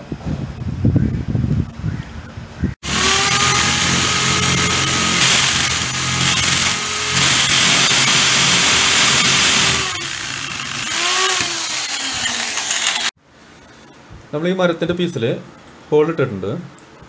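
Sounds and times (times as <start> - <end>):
electric drill boring wood: 2.8 - 13.2.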